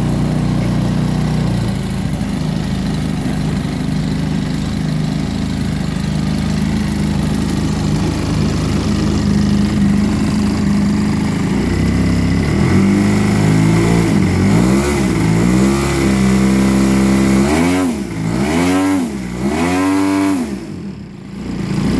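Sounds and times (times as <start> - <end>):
model plane engine revving: 6.9 - 20.8.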